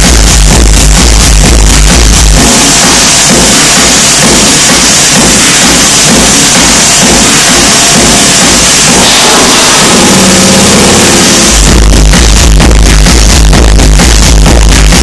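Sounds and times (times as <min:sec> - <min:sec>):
dense rushing synth noise: 0:00.0 - 0:15.0
kick drum and heavy bass: 0:00.0 - 0:15.0
held synth chord: 0:06.4 - 0:12.5.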